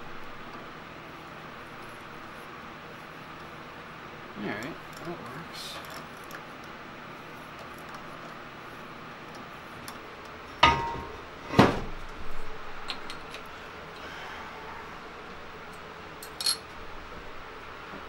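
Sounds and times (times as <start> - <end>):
metal clanks: 10.6 - 11.8.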